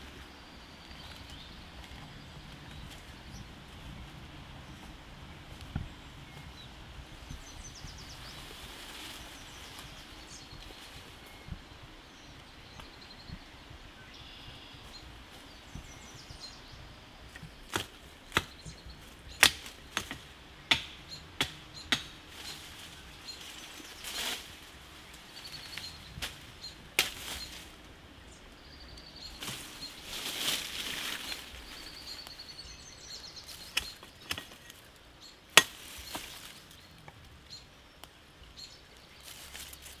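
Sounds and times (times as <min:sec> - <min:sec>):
forest ambience: 0:00.0 - 0:40.0
faint bird chirps: 0:09.2 - 0:16.9
twigs snapping: 0:25.7 - 0:27.7.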